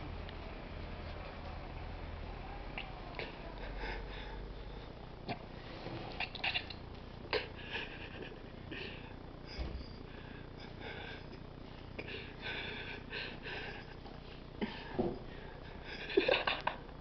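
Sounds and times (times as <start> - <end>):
stifled laughter: 6.2 - 9.1, 15.6 - 17.0.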